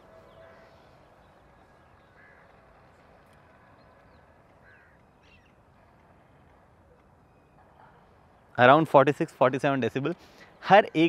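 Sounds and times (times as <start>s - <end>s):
faint bird calls: 0.0s - 8.4s
quiet outdoor background noise: 0.0s - 11.0s.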